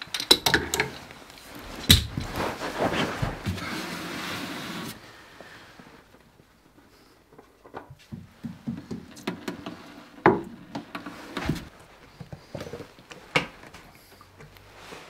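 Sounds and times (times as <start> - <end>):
tools clicking and knocking: 0.0 - 1.0.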